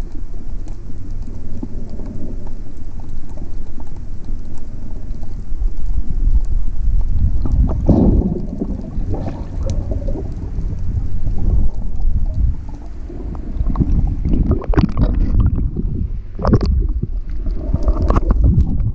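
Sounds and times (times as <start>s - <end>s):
underwater rumble: 0.0s - 18.9s
air bubbles bubbling: 6.6s - 18.9s.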